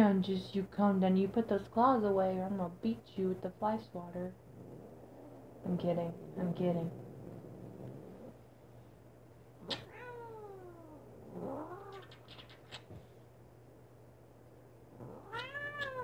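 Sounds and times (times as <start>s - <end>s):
cat meowing: 9.6s - 12.6s, 15.0s - 16.0s.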